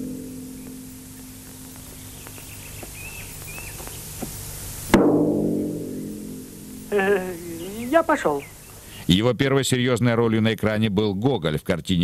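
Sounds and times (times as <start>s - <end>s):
faint bird chirps: 0.0s - 5.0s, 5.9s - 9.1s.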